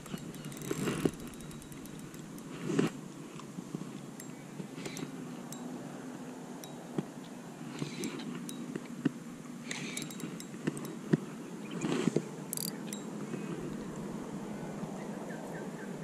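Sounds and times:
fishing reel clicking: 0.0 - 3.0, 4.2 - 5.7, 9.6 - 11.0, 12.5 - 13.0.

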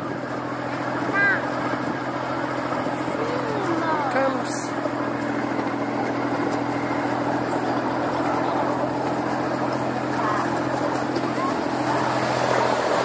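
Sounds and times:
miniature train engine hum: 0.0 - 13.0
train running on track: 0.0 - 13.0.

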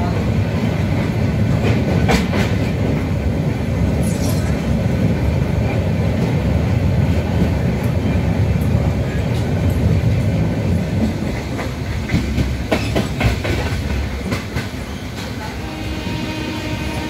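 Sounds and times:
train rumbling on bridge: 0.0 - 17.0
train wheel clicks: 11.0 - 15.4.

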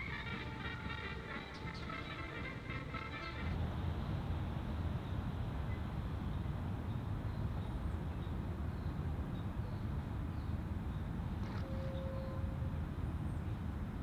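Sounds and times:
monorail train rumbling: 11.2 - 14.0.

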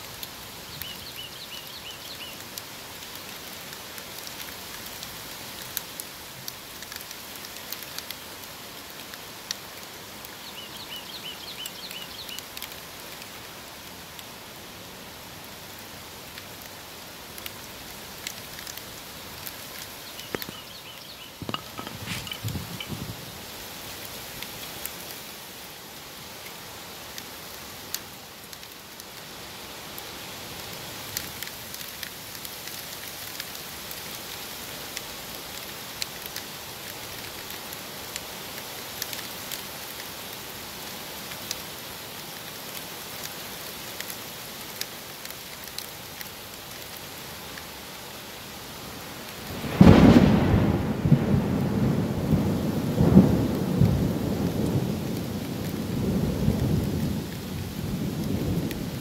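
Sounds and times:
steady rain hiss: 0.0 - 59.0
thunder clap rumbling: 49.5 - 57.2.

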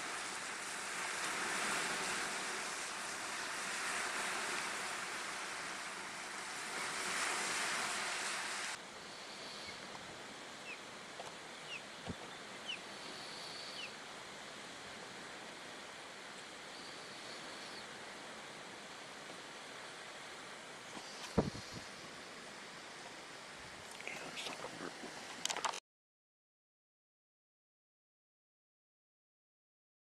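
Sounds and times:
waves washing up shore: 0.0 - 8.8
steady hiss: 0.0 - 25.8
gusty wind: 21.3 - 22.2.

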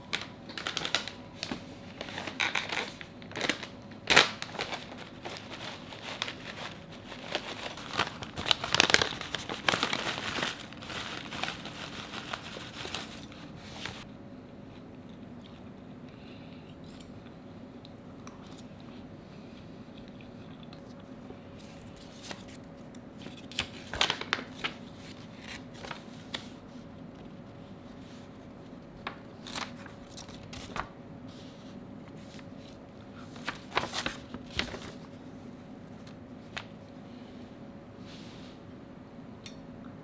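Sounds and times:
dry seaweed flakes rustling: 0.1 - 14.0
plastic pouch crinkling: 0.1 - 14.0.

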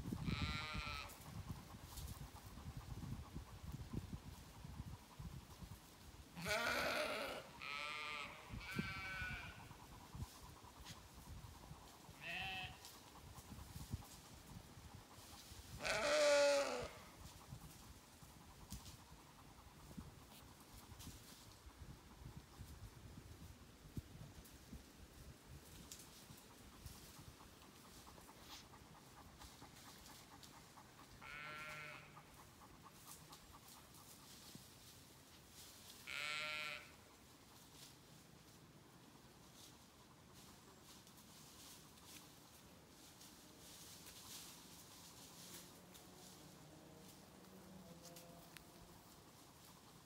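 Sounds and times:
sheep bleating: 6.4 - 9.6, 12.2 - 12.8, 15.8 - 17.0, 31.2 - 32.2, 36.1 - 36.9.

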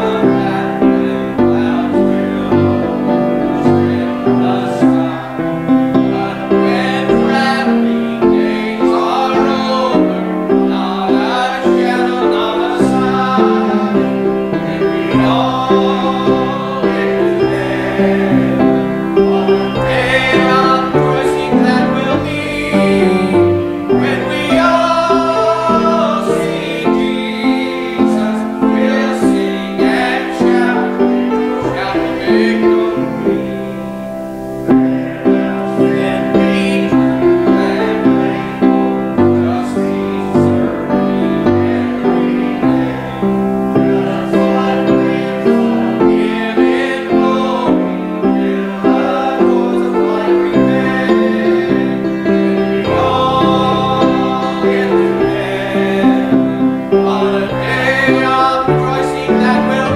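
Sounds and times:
grand piano playing: 0.0 - 59.9.

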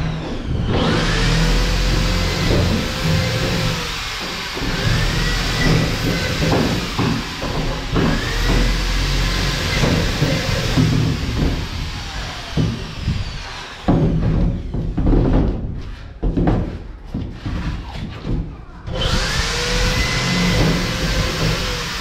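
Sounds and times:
electric drill whining: 0.0 - 14.0, 18.9 - 22.0
knocks: 2.4 - 8.9, 13.8 - 18.6.

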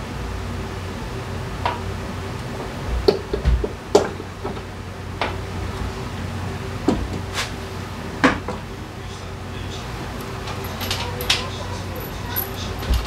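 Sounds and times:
low steady hum: 0.0 - 13.0
hand tools clicking and knocking: 10.2 - 13.0.

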